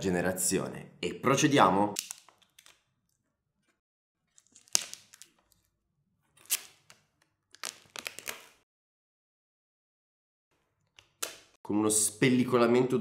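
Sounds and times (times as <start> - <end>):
protective film ripping: 4.4 - 5.5, 6.4 - 8.6.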